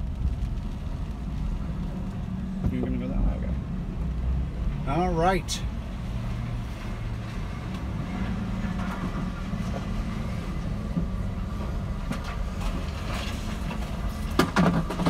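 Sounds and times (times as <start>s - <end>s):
van engine and road drone: 0.0s - 15.0s.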